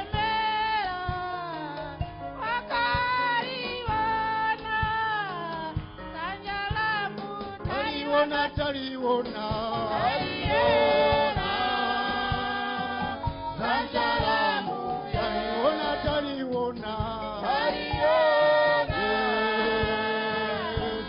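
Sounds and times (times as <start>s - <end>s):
group singing gospel song: 0.0s - 21.0s.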